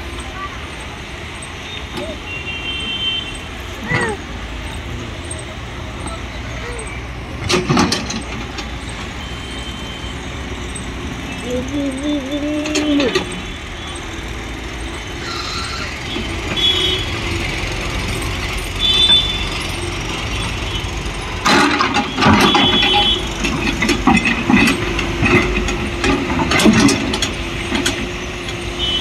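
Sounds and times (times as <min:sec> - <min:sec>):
excavator diesel engine running: 0:00.0 - 0:29.0
clanks and knocks: 0:07.2 - 0:11.6, 0:12.6 - 0:13.5, 0:21.3 - 0:28.8
high squeals: 0:08.1 - 0:23.4.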